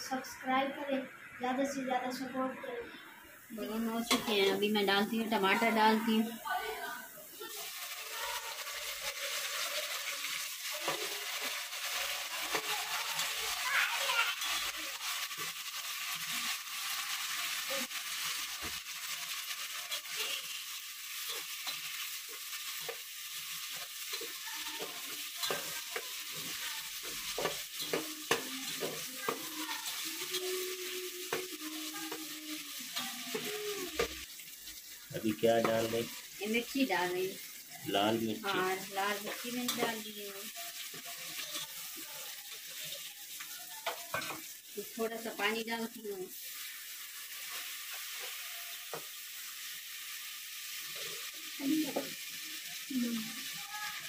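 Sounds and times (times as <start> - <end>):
onions sizzling in hot oil: 3.0 - 54.0
metal spatula scraping a pot: 7.7 - 13.5, 21.1 - 32.2.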